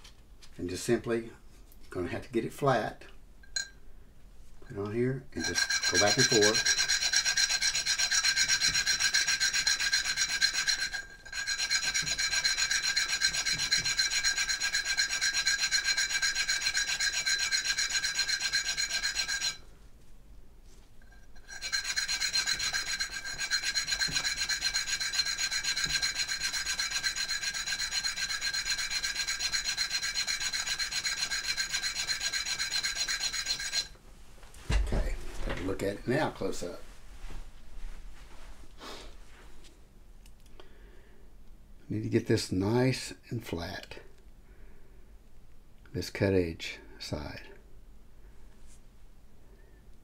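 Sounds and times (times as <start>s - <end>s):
coin rubbing on sandpaper: 5.4s - 19.6s, 21.4s - 34.0s.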